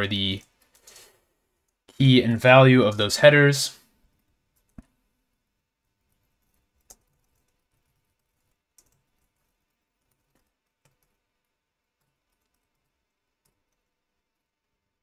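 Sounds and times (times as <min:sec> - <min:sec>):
faint keyboard keystrokes: 0:06.1 - 0:13.9.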